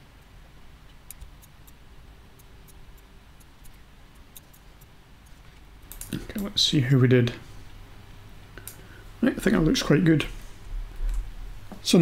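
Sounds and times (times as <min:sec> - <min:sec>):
low room noise: 0:00.0 - 0:12.0
computer mouse clicks: 0:00.9 - 0:01.8, 0:02.4 - 0:06.2.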